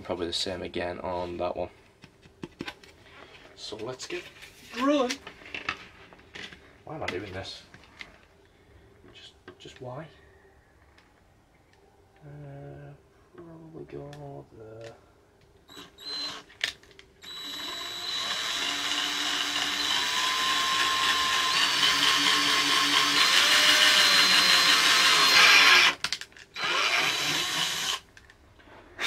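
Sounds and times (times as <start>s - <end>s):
cordless drill boring through plastic: 15.7s - 16.5s, 17.2s - 28.1s.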